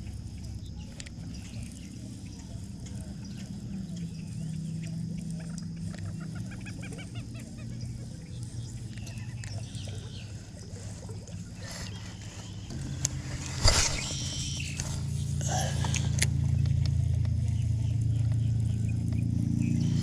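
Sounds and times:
boat motor humming: 0:00.0 - 0:20.0.

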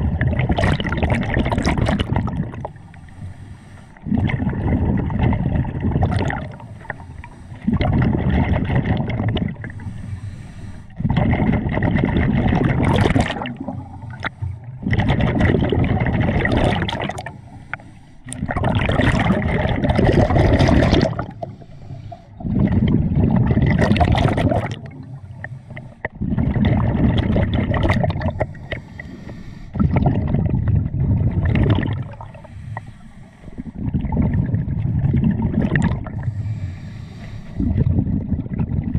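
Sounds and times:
diver exhaling bubbles underwater: 0:00.0 - 0:02.8, 0:04.0 - 0:07.0, 0:07.6 - 0:09.8, 0:11.0 - 0:17.4, 0:18.3 - 0:21.6, 0:22.3 - 0:25.2, 0:26.0 - 0:29.1, 0:29.7 - 0:32.6, 0:33.6 - 0:36.6, 0:37.5 - 0:38.9.

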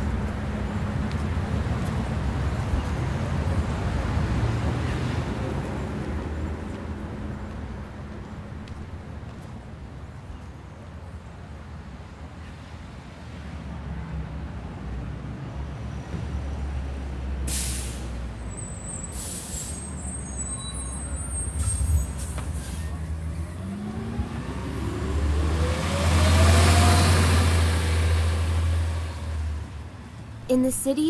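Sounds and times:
bus engine running: 0:00.0 - 0:10.2
air brake hisses: 0:17.5 - 0:18.2, 0:19.0 - 0:20.0
high brake squeal: 0:17.5 - 0:23.1.

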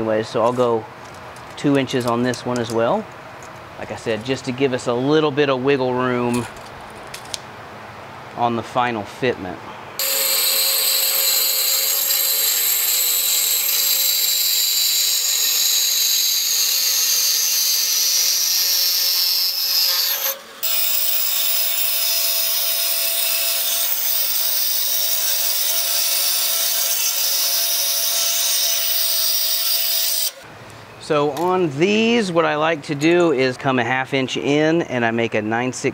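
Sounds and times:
band saw cutting metal tubing: 0:10.0 - 0:30.4.

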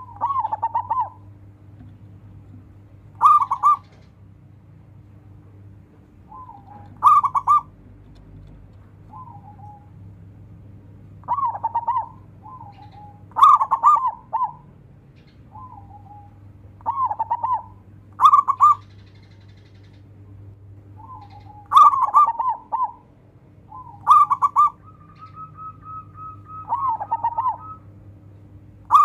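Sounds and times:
dove cooing: 0:00.0 - 0:01.9, 0:03.0 - 0:04.2, 0:06.1 - 0:07.8, 0:08.5 - 0:10.4, 0:11.1 - 0:14.8, 0:15.5 - 0:20.1, 0:20.9 - 0:28.1.

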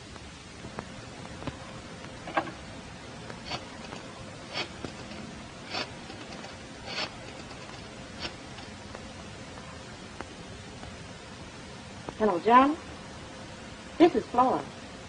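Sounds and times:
film soundtrack hiss: 0:00.0 - 0:15.0.

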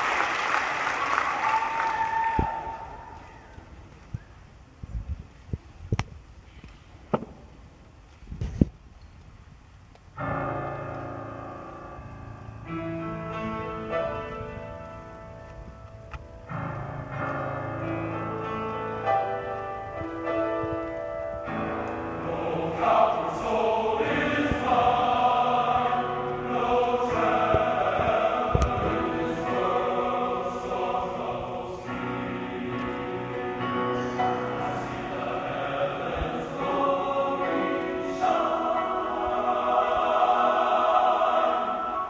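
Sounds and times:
men's choir singing: 0:21.9 - 0:42.0.

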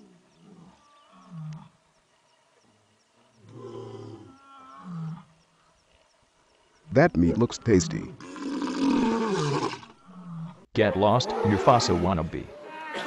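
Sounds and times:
lion roaring: 0:08.2 - 0:13.0.

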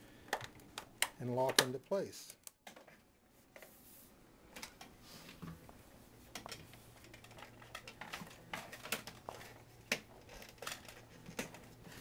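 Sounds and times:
plastic blind parts clicking: 0:06.4 - 0:11.7.

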